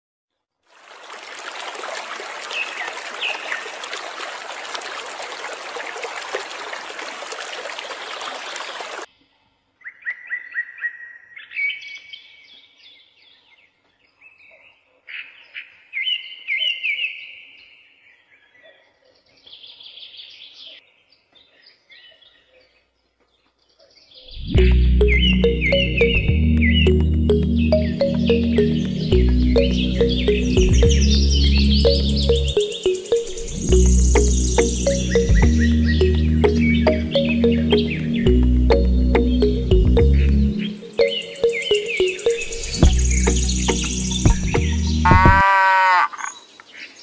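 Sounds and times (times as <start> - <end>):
water splashing into small pool: 0.6 - 9.1
birds chirping: 18.6 - 47.0.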